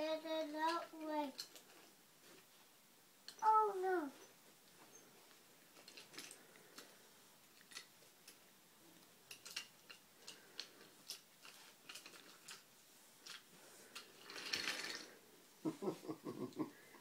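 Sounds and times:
toy train cars clacking: 9.3s - 15.1s.

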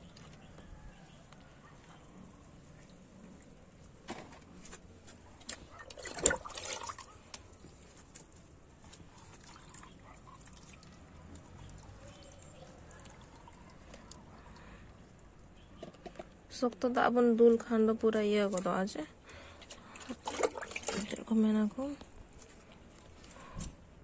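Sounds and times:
water pouring and splashing: 5.4s - 14.6s, 19.6s - 21.4s.

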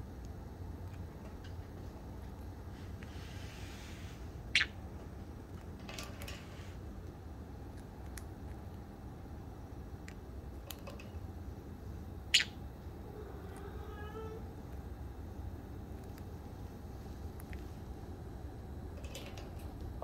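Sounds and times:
parrot chirping: 4.5s - 4.8s, 12.3s - 12.6s.

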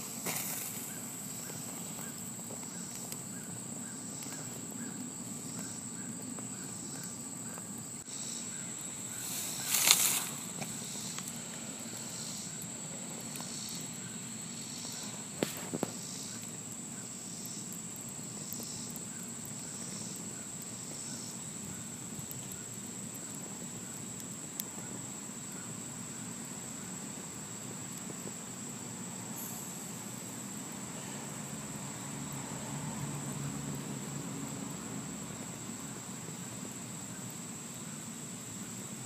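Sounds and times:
high insect whine: 0.0s - 39.0s.

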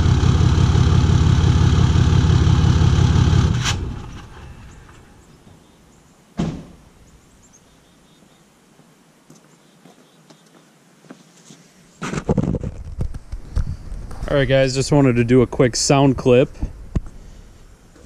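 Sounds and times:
diesel engine running loud: 0.0s - 5.2s
door closing thump: 6.4s - 6.8s.

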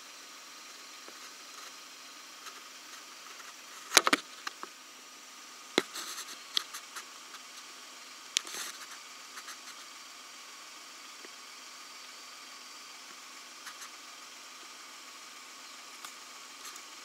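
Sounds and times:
faint steady hiss: 0.0s - 17.0s
brush rustling: 5.8s - 7.8s, 8.4s - 9.9s.

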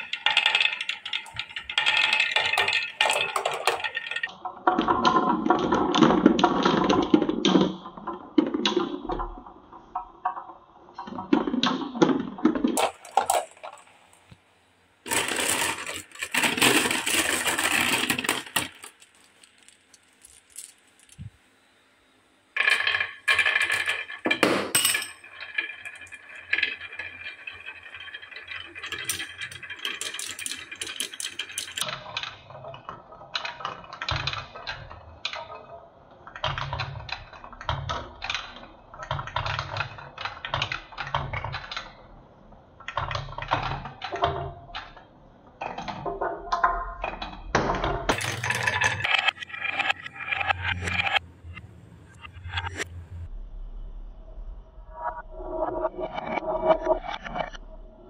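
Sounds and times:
marbles clicking together: 0.0s - 4.3s, 15.1s - 21.3s, 22.6s - 31.9s
marbles rattling: 0.0s - 4.4s, 12.5s - 14.3s, 15.0s - 21.3s, 22.6s - 31.9s, 48.1s - 51.2s
marbles rolling on wooden tracks: 0.0s - 14.4s, 15.0s - 21.3s, 22.6s - 42.2s, 42.8s - 51.6s.

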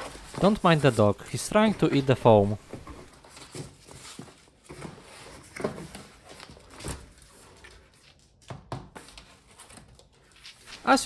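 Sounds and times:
cardboard rustling: 0.0s - 8.2s.

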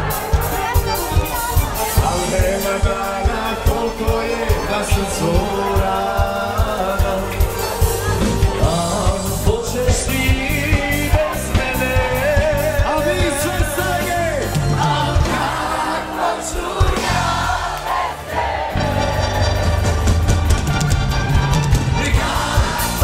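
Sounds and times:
person singing: 0.0s - 17.4s
live band playing dance music: 0.0s - 23.0s.

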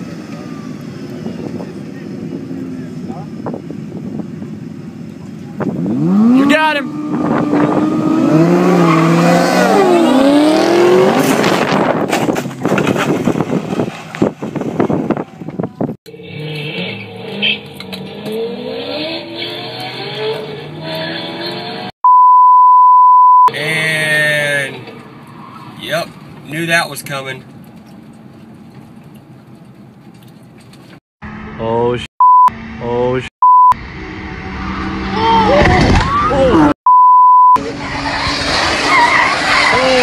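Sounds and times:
car engine revving hard: 5.8s - 12.1s, 16.2s - 21.9s
loud steady beep tone: 22.0s - 23.5s, 32.2s - 32.6s, 33.4s - 33.8s, 36.9s - 37.6s
tyre squeal: 37.6s - 40.0s.

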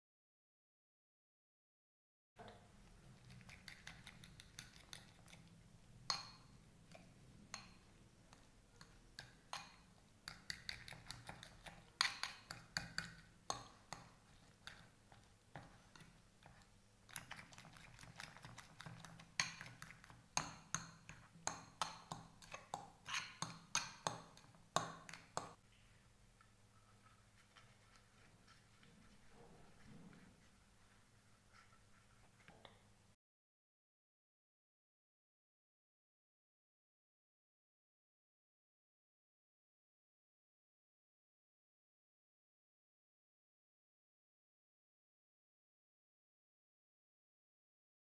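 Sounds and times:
spoon scraping a porcelain bowl: 2.8s - 25.6s, 26.7s - 32.7s.

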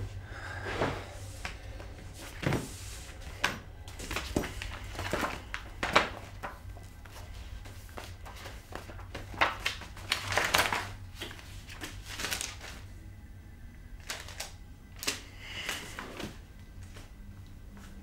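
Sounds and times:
low steady hum: 0.0s - 18.0s
paper pages rustling: 2.2s - 12.9s, 14.0s - 17.1s.

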